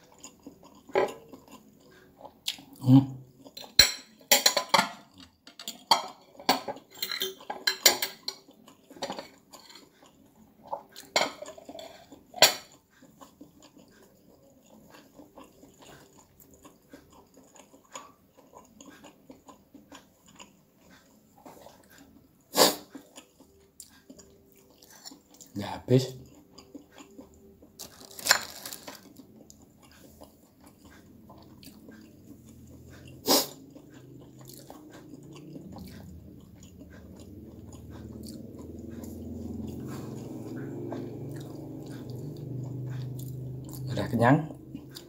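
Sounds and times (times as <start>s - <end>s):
chewing: 0.0s - 45.0s
cutlery clinking on plate: 3.7s - 8.4s.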